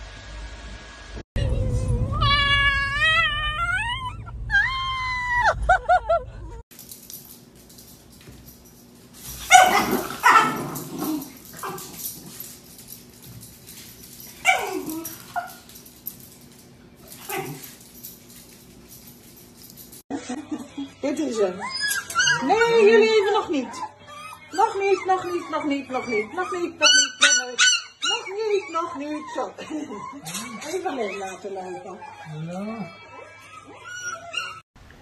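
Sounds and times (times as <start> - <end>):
dog howling whine: 1.5 - 5.6, 28.3 - 34.6
dog yipping: 2.1 - 5.5, 9.4 - 12.0, 14.2 - 15.7, 17.2 - 17.7, 21.6 - 34.6.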